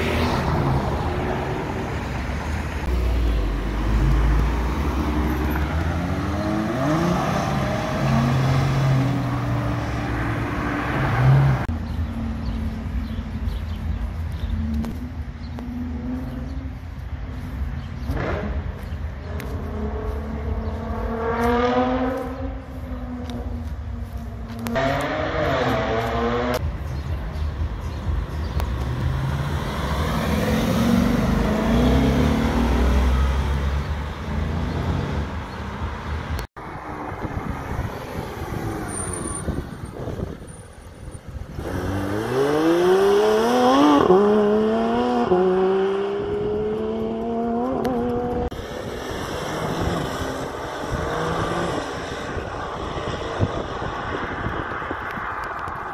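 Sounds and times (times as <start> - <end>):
sports car accelerating hard: 3.6 - 11.7, 18.0 - 23.5, 24.6 - 26.6, 28.8 - 35.4, 41.5 - 55.6.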